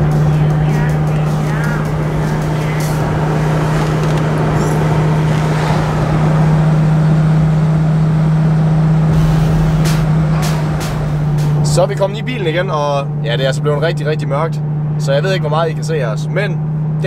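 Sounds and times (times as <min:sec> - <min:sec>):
car engine cruising: 0:00.0 - 0:17.0
road and tyre noise: 0:00.0 - 0:17.0.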